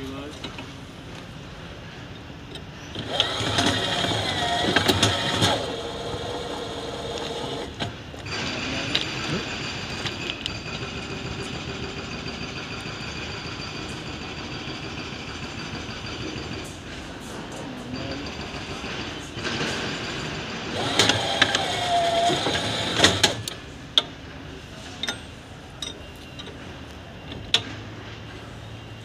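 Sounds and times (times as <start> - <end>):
shifting mechanical sound: 2.9 - 11.9, 18.2 - 24.1
machinery high whine: 2.9 - 23.6.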